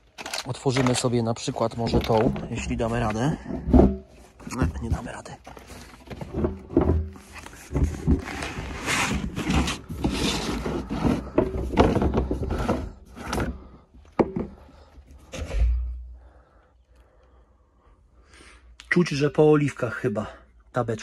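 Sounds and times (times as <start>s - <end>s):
plastic lid scraping and creaking: 0.0s - 16.0s.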